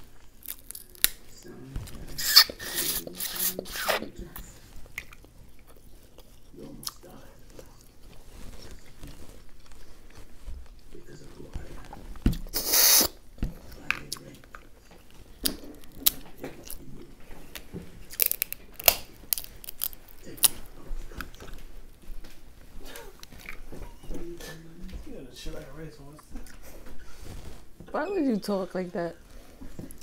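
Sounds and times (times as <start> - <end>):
close-up chewing: 0.0 - 25.0
crab shells cracking: 0.2 - 1.3, 17.6 - 20.7.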